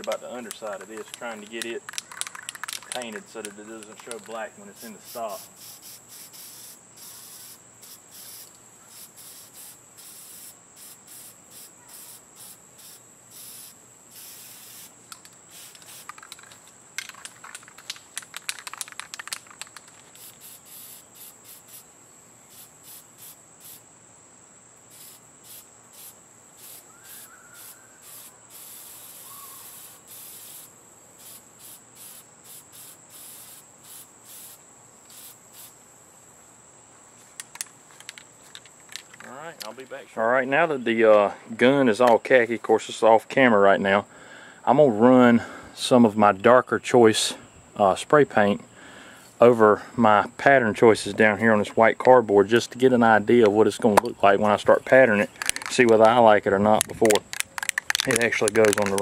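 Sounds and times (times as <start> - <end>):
spray paint can hissing: 0.0 - 21.9, 22.5 - 23.8, 24.9 - 35.8, 56.8 - 59.0
high insect drone: 0.0 - 59.0
rapid clicking rattle: 0.9 - 3.2, 15.1 - 20.3.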